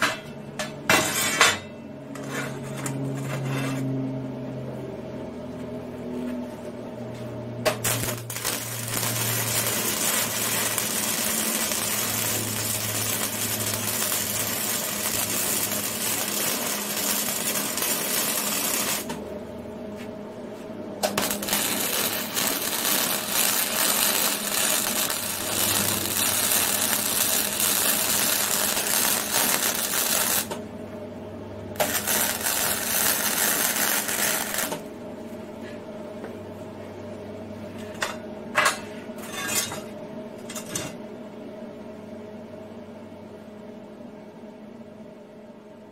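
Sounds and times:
welding arc crackling: 7.7s - 19.2s, 21.0s - 30.6s, 31.8s - 34.9s.

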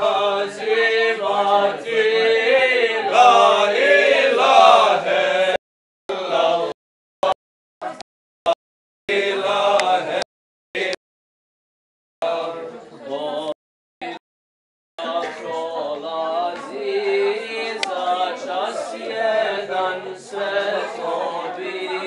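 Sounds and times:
men chanting together: 0.0s - 7.4s, 9.1s - 11.0s, 15.0s - 22.0s.

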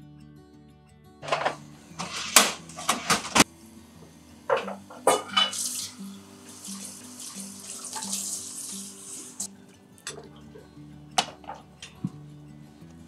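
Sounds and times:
soft background music: 0.0s - 13.0s
metal ladle clinking in saucepan: 4.5s - 5.7s.

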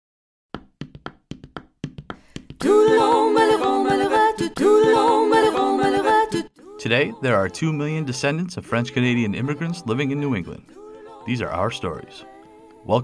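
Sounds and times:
group singing in harmony: 2.6s - 13.0s.

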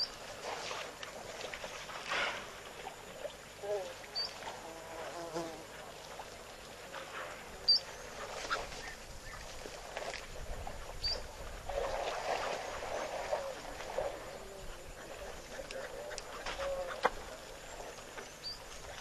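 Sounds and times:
elephants splashing in mud: 0.0s - 3.3s, 5.8s - 15.3s.

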